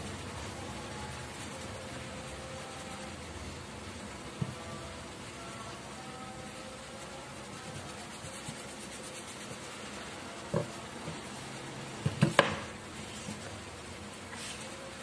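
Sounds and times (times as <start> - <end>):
tape roll knocking on cardboard: 12.0 - 12.7.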